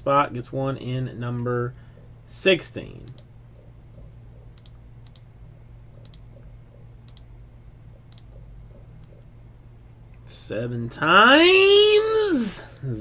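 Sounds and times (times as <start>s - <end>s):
low steady hum: 0.0s - 13.0s
computer mouse clicking: 3.0s - 3.3s, 4.0s - 5.3s, 6.0s - 7.3s, 8.0s - 9.2s.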